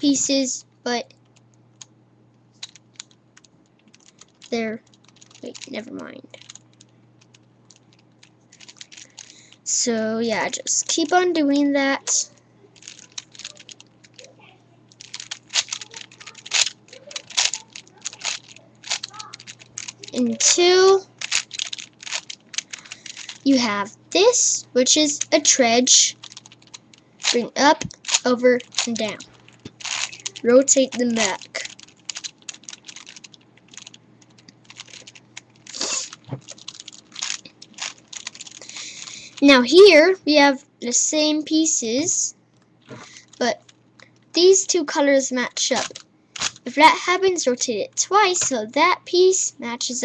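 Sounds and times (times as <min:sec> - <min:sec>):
puzzle cube clicking as turned: 0:02.6 - 0:03.2, 0:03.8 - 0:05.7, 0:06.4 - 0:06.6, 0:12.8 - 0:14.2, 0:15.0 - 0:23.5, 0:26.1 - 0:39.2.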